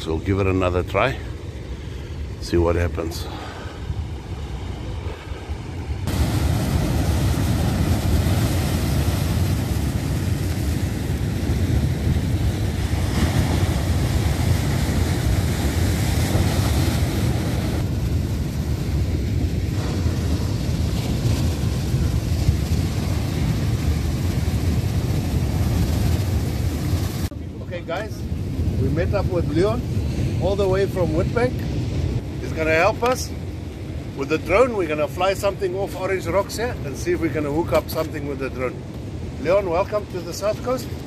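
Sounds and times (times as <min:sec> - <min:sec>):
wind rumbling on microphone: 0:00.0 - 0:41.0
surf breaking on rocks: 0:06.0 - 0:31.6.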